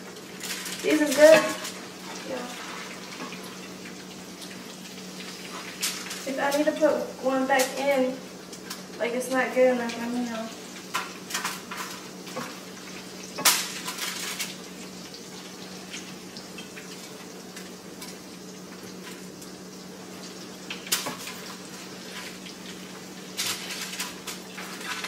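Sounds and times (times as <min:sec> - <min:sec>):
chicken sizzling in oil: 0:00.0 - 0:25.0
utensil scraping pan: 0:00.5 - 0:03.6.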